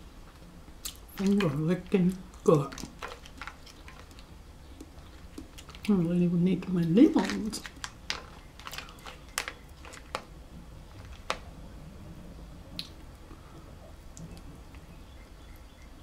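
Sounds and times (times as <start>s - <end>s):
crab shell clicking: 7.6s - 10.3s.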